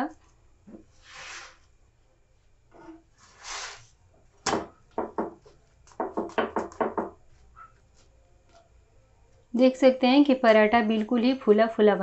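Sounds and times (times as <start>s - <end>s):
spatula knocking on pan: 5.0s - 7.2s.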